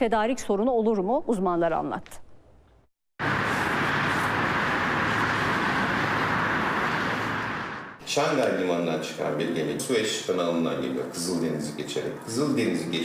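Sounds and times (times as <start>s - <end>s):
low hum: 3.2s - 8.0s
rushing outdoor ambience: 3.2s - 13.0s.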